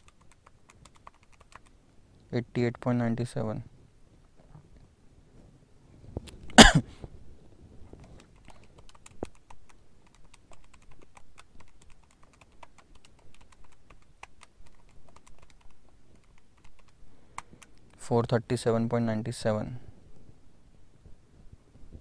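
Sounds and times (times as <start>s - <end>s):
calculator keys clicking: 0.0s - 1.7s, 8.0s - 17.9s
man coughing: 6.6s - 6.9s.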